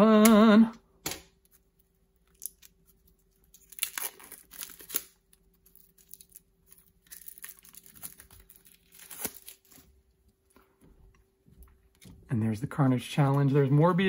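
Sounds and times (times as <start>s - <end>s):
plastic shrink wrap crinkling: 1.6s - 10.2s.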